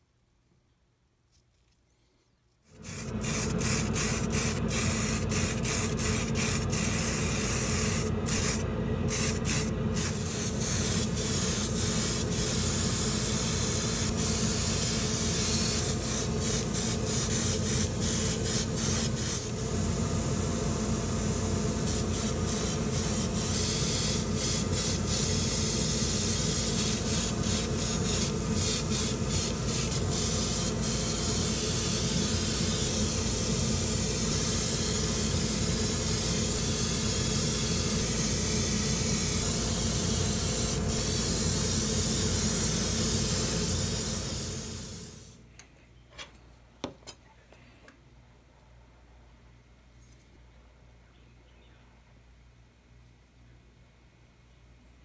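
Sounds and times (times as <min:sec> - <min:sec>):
airbrush hissing: 0:02.8 - 0:45.4.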